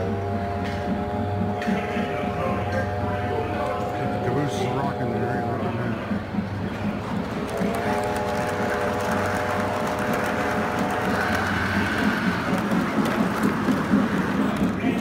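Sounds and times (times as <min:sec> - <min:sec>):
held multi-note tone: 0:00.0 - 0:06.8
model train rumbling: 0:00.0 - 0:15.0.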